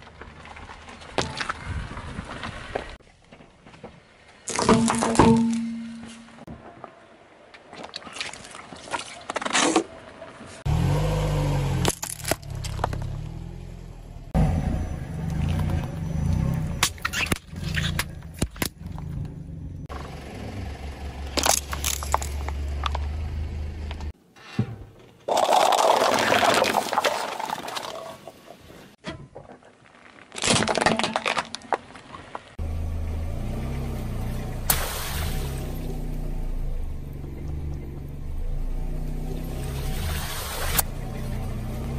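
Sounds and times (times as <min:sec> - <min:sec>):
car tyre crushing plastic bottles: 0:11.8 - 0:13.2, 0:21.3 - 0:23.1, 0:25.2 - 0:28.4, 0:29.6 - 0:32.5.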